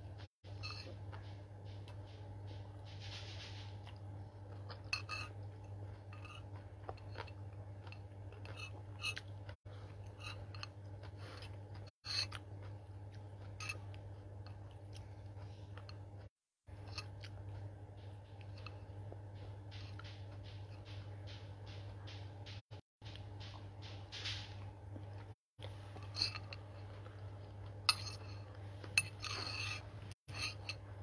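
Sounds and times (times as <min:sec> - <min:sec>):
steady low hum: 0:00.0 - 0:31.0
person chewing noodles: 0:03.8 - 0:20.8, 0:24.9 - 0:31.0.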